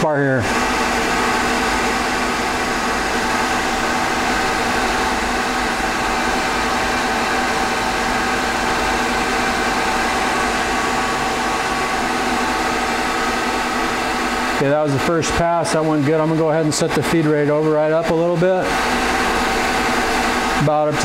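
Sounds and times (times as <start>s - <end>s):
lathe motors humming and whining: 0.0s - 21.0s.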